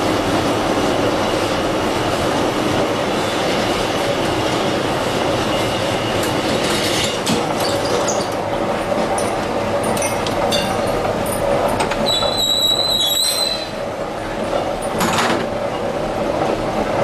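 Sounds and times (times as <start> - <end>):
metal-on-metal squeal: 12.0 - 13.8.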